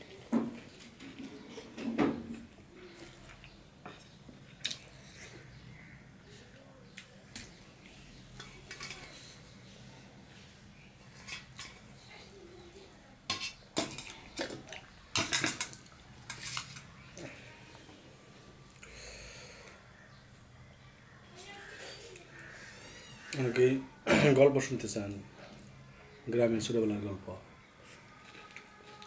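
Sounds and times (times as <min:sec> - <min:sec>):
steel bowl and plate clinking: 0:13.3 - 0:16.9.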